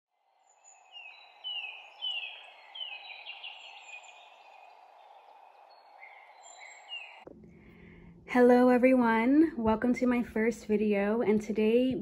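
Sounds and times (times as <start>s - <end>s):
birds chirping and trilling: 0.3s - 7.3s.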